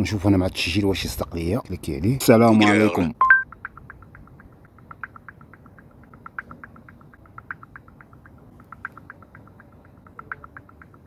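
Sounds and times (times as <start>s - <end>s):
soft electronic ticking: 3.2s - 11.0s.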